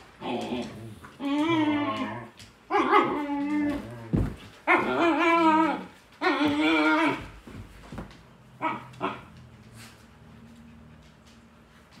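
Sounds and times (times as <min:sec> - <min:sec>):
puppy whining: 0:00.2 - 0:07.5.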